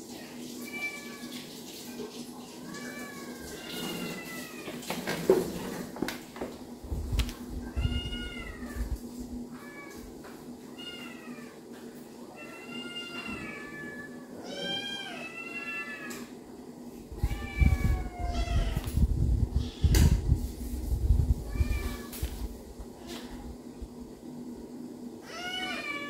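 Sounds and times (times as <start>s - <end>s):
cats meowing: 0.1s - 1.5s, 2.6s - 4.9s, 7.6s - 16.4s, 17.1s - 20.2s, 21.4s - 22.3s, 25.2s - 26.0s.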